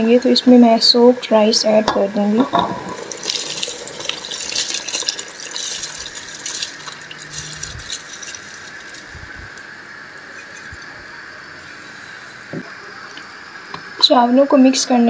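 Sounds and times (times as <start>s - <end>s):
stock bubbling: 2.4s - 9.6s, 10.2s - 13.2s
rice pouring into liquid: 3.0s - 12.4s.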